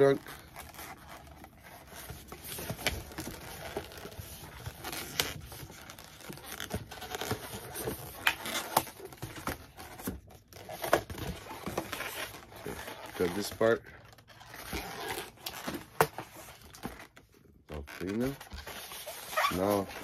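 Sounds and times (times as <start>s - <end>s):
balloons rubbing and crinkling: 0.0s - 20.0s.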